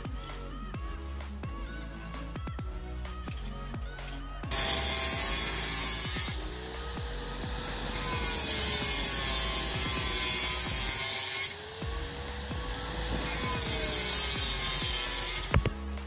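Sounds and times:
electric power tool whining: 0:03.3 - 0:16.0.

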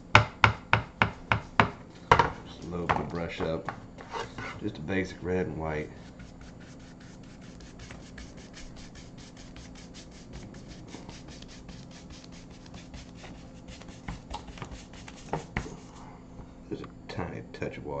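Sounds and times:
paintbrush scrubbing canvas: 0:05.8 - 0:16.0.

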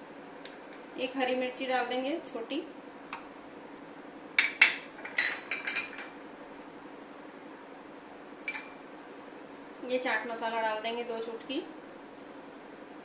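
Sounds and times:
utensils clinking against a dish: 0:04.4 - 0:06.2.

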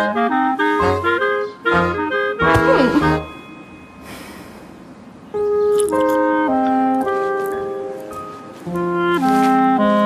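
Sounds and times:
playful reedy film music: 0:00.0 - 0:03.7.

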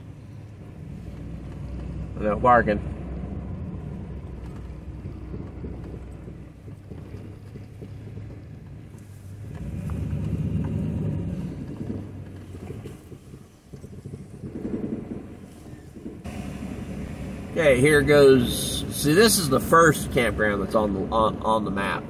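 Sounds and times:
pickup engine and tyres on gravel: 0:00.0 - 0:22.0.

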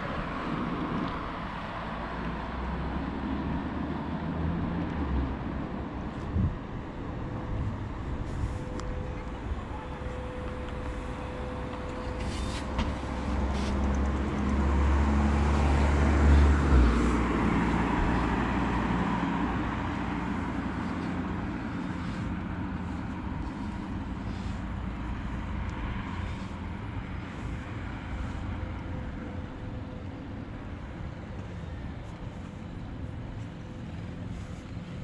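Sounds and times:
general traffic noise: 0:00.0 - 0:35.0
car passing by: 0:07.1 - 0:29.5.

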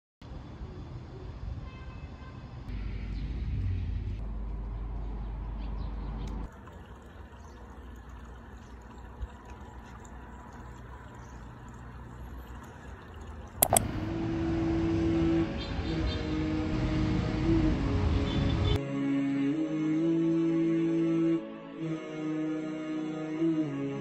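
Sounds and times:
traffic rumble: 0:00.3 - 0:15.4
sharp click: 0:13.6 - 0:13.9.

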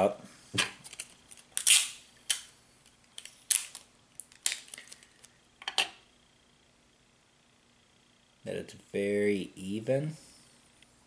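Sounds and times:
plastic items handled: 0:03.0 - 0:05.8.

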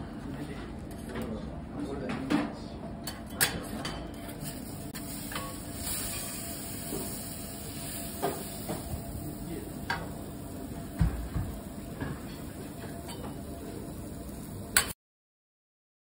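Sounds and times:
spatulas scraping on griddle: 0:03.8 - 0:08.8
griddle hiss: 0:04.3 - 0:15.0.

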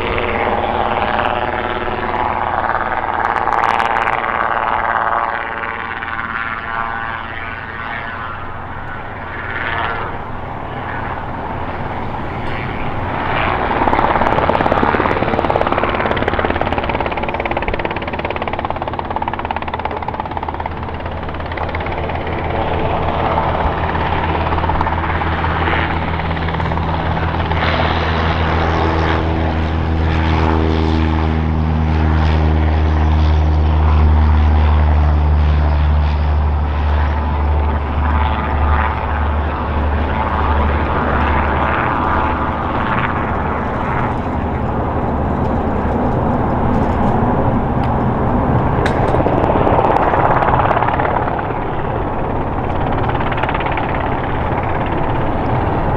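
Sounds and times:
helicopter drone: 0:00.0 - 0:55.9
low hum: 0:00.0 - 0:55.9.

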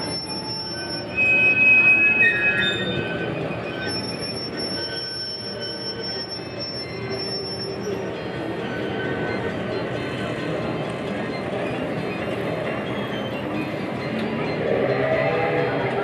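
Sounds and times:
high thin wheel squeal: 0:00.0 - 0:09.7
small train rumbling: 0:00.0 - 0:16.0.

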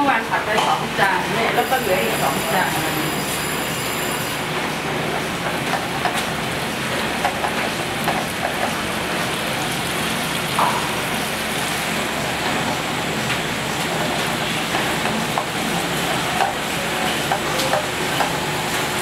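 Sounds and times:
noodles sizzling in a pan: 0:01.5 - 0:04.4.

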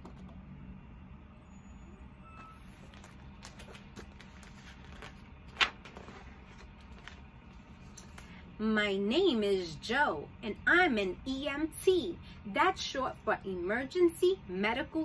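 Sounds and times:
low steady hum: 0:00.0 - 0:15.0
book pages rustling: 0:02.7 - 0:08.4.

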